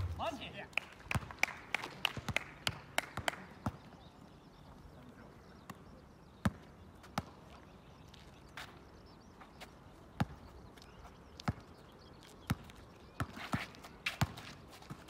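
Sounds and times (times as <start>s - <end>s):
basketball bouncing on asphalt: 1.1s - 1.5s, 6.4s - 7.4s, 10.1s - 10.5s, 11.4s - 11.8s, 12.4s - 15.0s.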